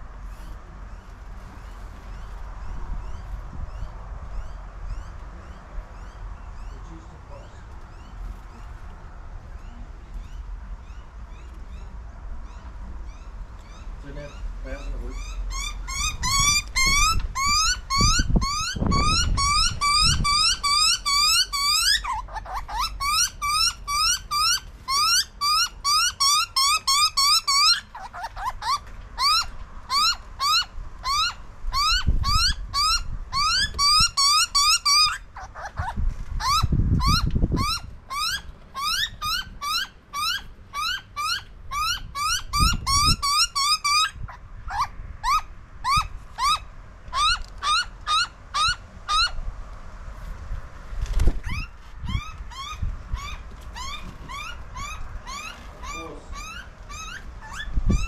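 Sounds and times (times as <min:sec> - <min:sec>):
young bird begging calls: 0:14.3 - 0:49.4, 0:51.4 - 0:58.0.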